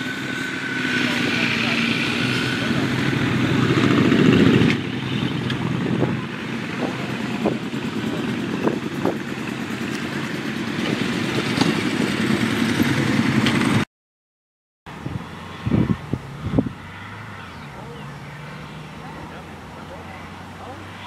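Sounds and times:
fire truck engine running: 0:00.0 - 0:13.8.

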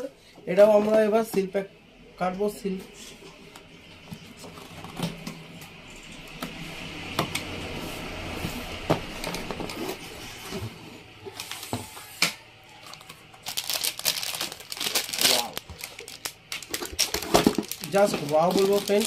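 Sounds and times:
packaging crinkling: 0:12.8 - 0:19.0.

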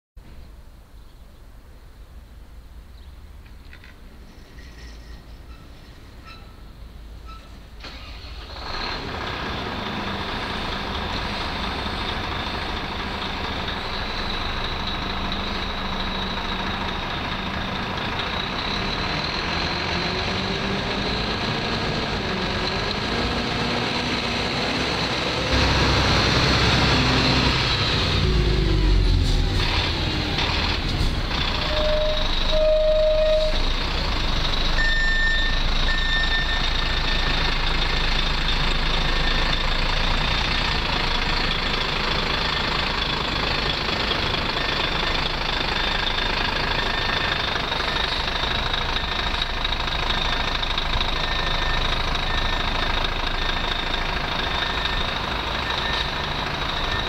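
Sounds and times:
fire engine diesel engine: 0:03.6 - 0:57.0
short beeping tones: 0:34.8 - 0:37.3.

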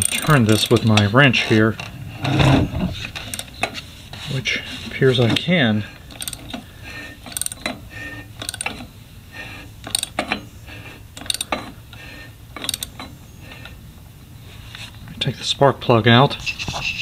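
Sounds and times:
ratchet wrench clicking: 0:06.1 - 0:06.6, 0:07.3 - 0:07.7, 0:08.4 - 0:08.8, 0:09.8 - 0:10.2, 0:11.2 - 0:11.6, 0:12.6 - 0:13.0.

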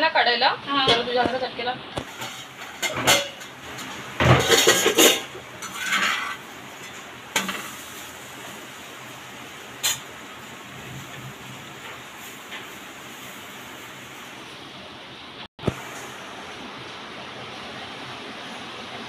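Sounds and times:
steady hiss: 0:00.1 - 0:19.0
metal cookware clattering: 0:00.7 - 0:08.1, 0:09.8 - 0:10.1.

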